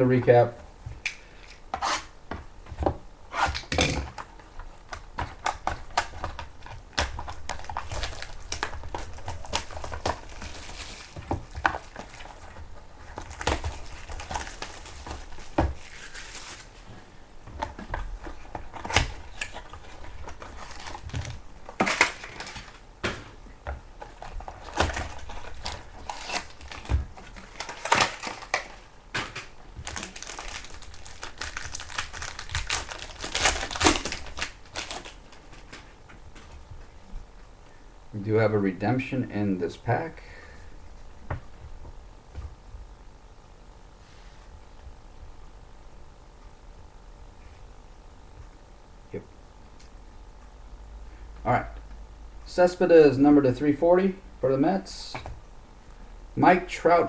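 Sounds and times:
cardboard box and foil packs rustling: 0:03.5 - 0:16.9, 0:17.6 - 0:22.8, 0:24.0 - 0:36.6
plastic shrink-wrap crinkling: 0:03.5 - 0:16.9, 0:18.1 - 0:22.8, 0:24.0 - 0:36.5.

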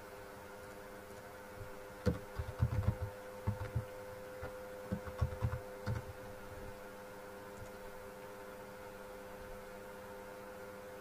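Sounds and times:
steady electrical hum: 0:00.0 - 0:11.0
keyboard keystrokes clicking: 0:02.0 - 0:03.9, 0:04.9 - 0:06.1.

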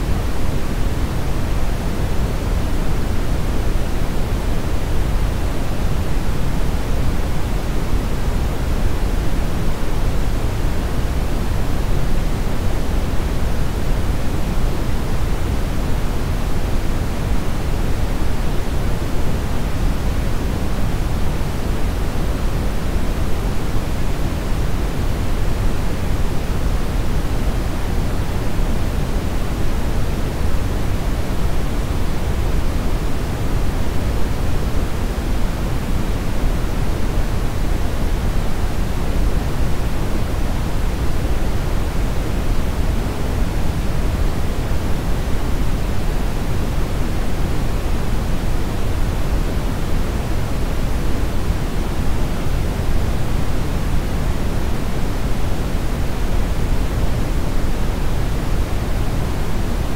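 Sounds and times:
brown noise hiss: 0:00.0 - 0:59.9.

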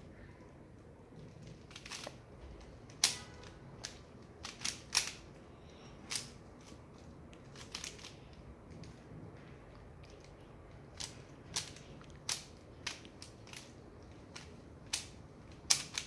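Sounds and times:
puzzle cube layers clicking: 0:10.9 - 0:16.0.

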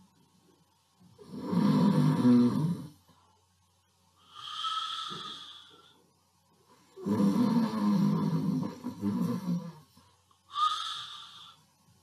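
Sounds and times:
man imitating snoring: 0:01.2 - 0:03.0, 0:07.0 - 0:09.9, 0:10.5 - 0:11.6
whistling breath out: 0:10.5 - 0:11.6.

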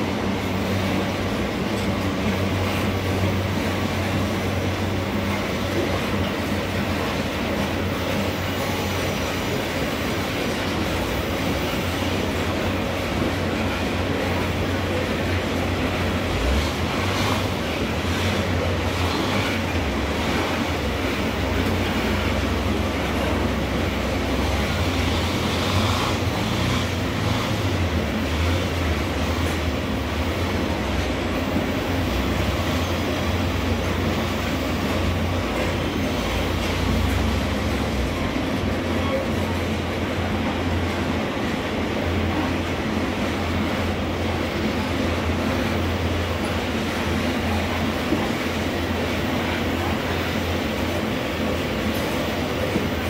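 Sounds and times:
train wheels rolling on rails: 0:00.0 - 0:53.0.

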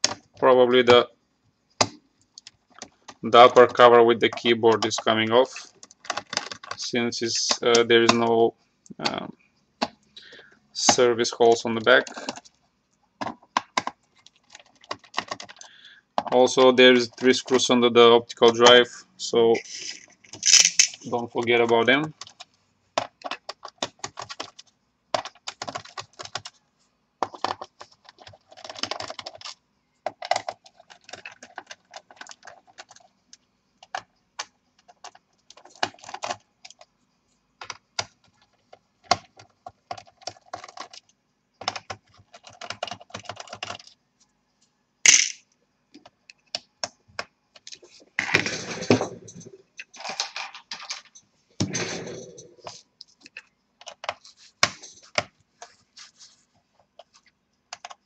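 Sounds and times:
screwdriver and screws clicking: 0:19.7 - 0:21.1.

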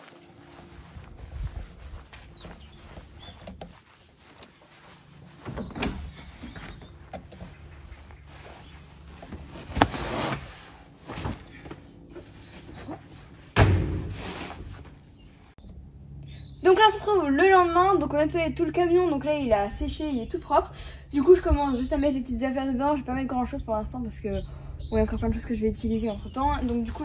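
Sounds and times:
heavy thump: 0:13.6 - 0:14.5.

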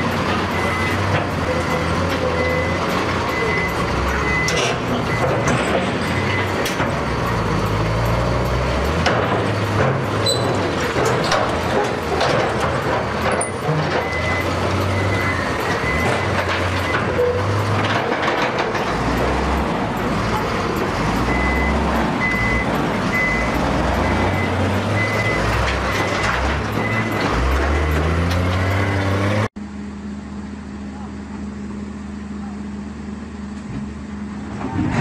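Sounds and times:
reversing alarm beeping: 0:00.0 - 0:09.0, 0:13.4 - 0:17.8, 0:19.1 - 0:28.3
diesel machinery engines revving: 0:00.0 - 0:35.0.

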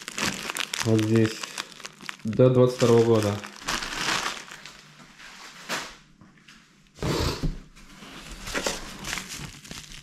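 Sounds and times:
packages rustling in cardboard box: 0:00.0 - 0:06.0, 0:08.1 - 0:10.0.

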